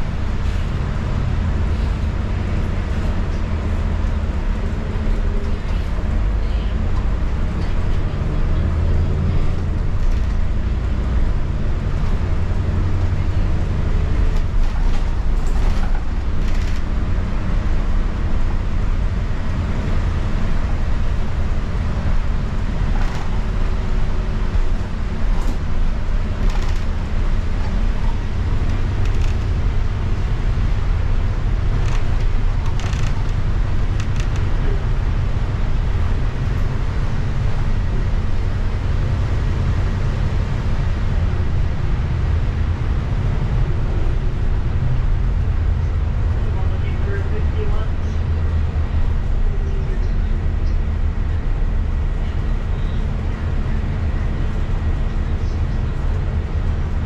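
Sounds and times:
bus engine drone: 0.0s - 57.0s
road noise: 0.0s - 57.0s
short clicks and rattles: 26.4s - 27.0s, 31.8s - 34.6s.

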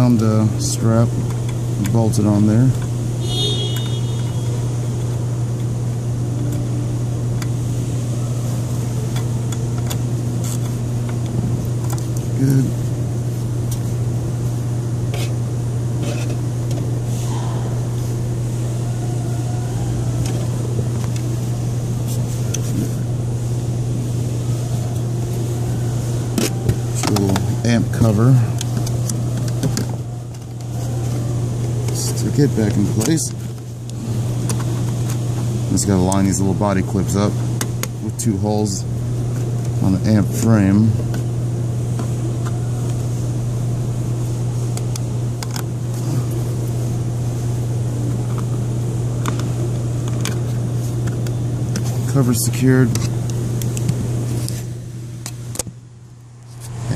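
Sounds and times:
low hum: 0.2s - 56.9s.

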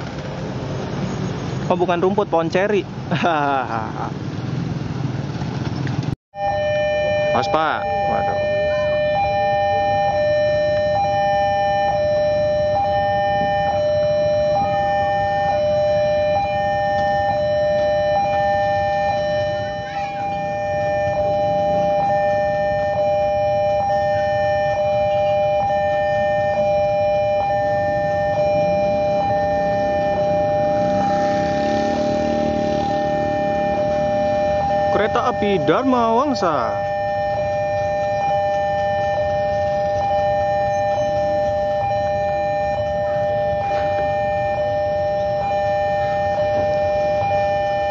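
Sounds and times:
low rumble of traffic: 0.0s - 47.9s
level crossing two-tone alarm: 6.4s - 47.9s
diesel locomotive approaching: 28.1s - 36.5s.

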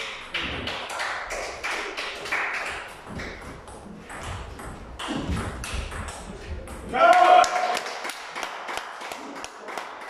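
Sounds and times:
table tennis ball hits: 0.0s - 10.0s.

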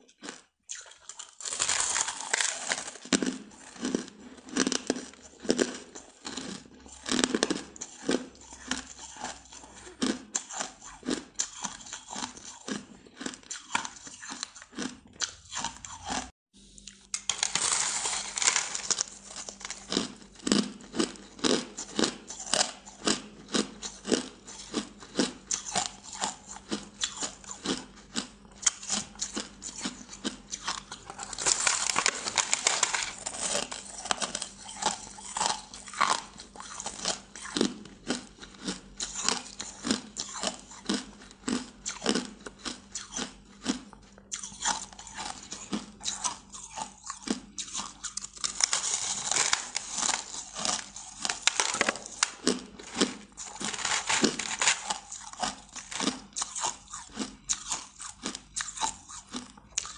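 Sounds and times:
crunching ice: 0.1s - 16.3s, 16.9s - 59.9s.

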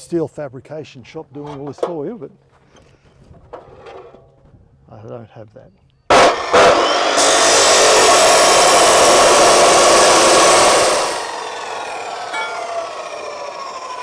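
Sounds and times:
cut-off saw grinding steel: 6.1s - 14.0s
saw disc spinning down: 6.1s - 14.0s.

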